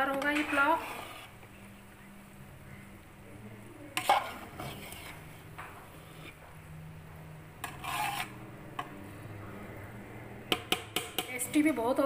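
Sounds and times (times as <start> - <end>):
metal spoon scraping steel pot: 0.1 - 1.4, 4.0 - 6.4, 7.6 - 9.0.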